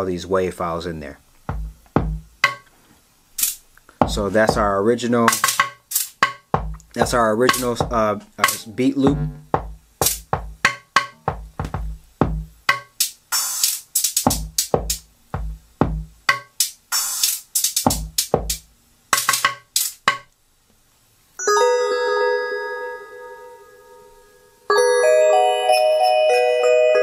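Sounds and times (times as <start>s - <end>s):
drum machine beat: 1.4s - 2.7s, 3.4s - 20.3s
bell-like synth chord: 21.4s - 27.0s.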